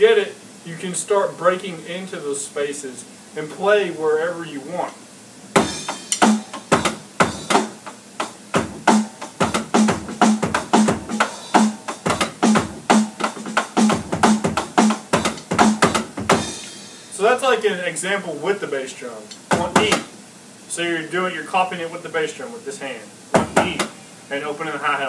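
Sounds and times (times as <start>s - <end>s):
electronic drum groove: 5.5s - 17.0s, 19.3s - 20.1s, 23.3s - 24.0s.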